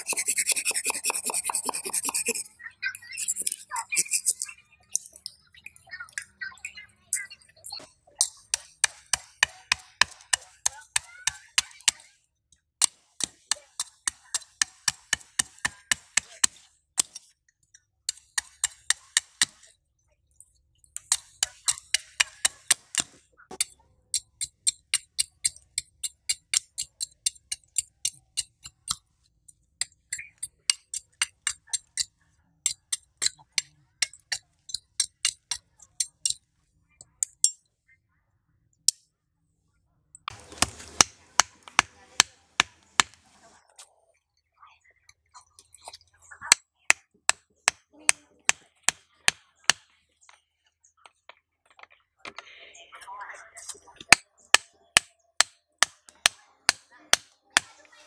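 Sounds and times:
machete chopping sticks: 0.0s - 2.4s.

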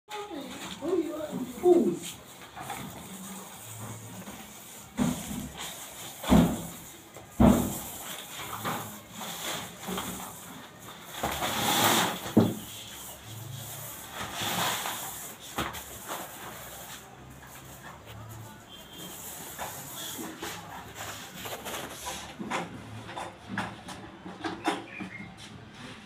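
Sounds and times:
paint roller on a wall: 0.1s - 26.0s
sharp knocks and thumps: 6.2s - 7.9s.

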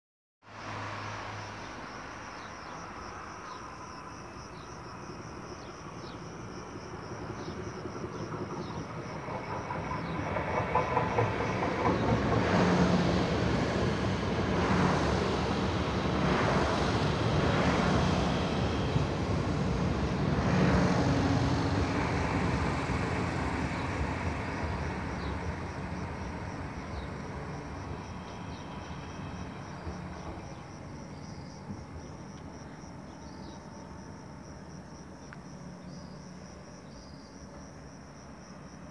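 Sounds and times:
train wheels rushing on rail: 6.7s - 32.5s
train wheels clacking: 7.9s - 15.5s.

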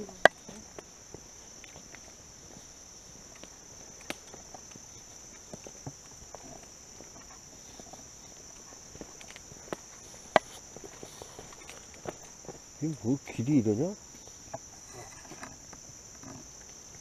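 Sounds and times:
footsteps on dirt trail: 0.0s - 13.2s
high-pitched insect chorus: 0.0s - 17.0s.

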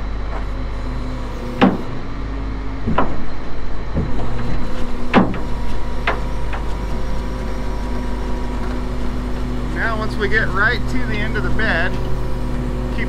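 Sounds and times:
tow truck running: 0.0s - 13.0s
sharp metallic clunks: 2.8s - 6.7s.

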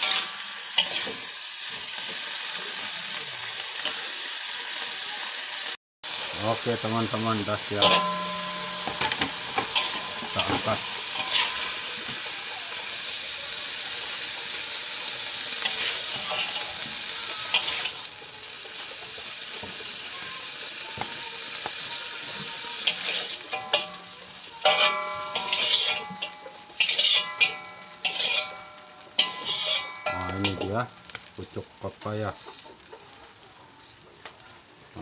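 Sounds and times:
metal spatula scraping wok: 0.0s - 2.9s, 6.1s - 12.4s, 14.1s - 18.0s, 22.3s - 31.4s
vegetables sizzling in a wok: 0.0s - 35.0s.

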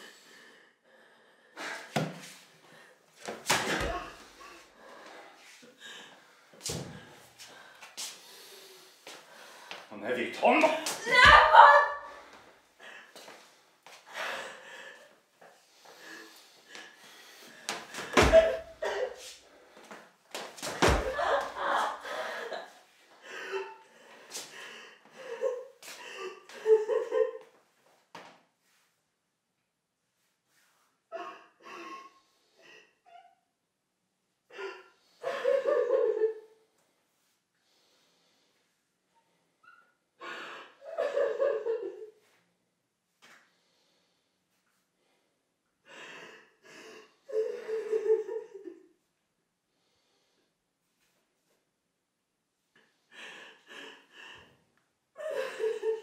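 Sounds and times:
woman sobbing and gasping: 11.0s - 12.3s.

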